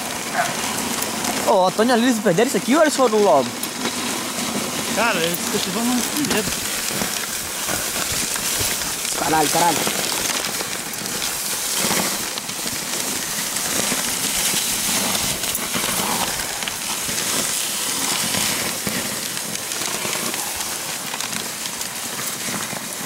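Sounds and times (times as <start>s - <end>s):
sled runners hissing over snow: 0.0s - 23.0s.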